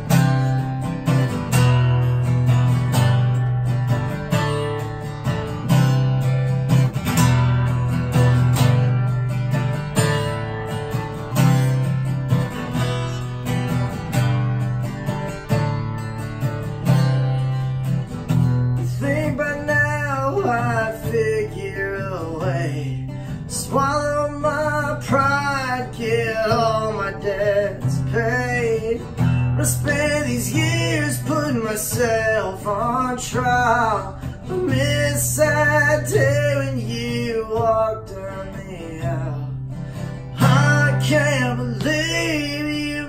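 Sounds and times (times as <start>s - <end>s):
acoustic guitar strumming: 0.0s - 43.0s.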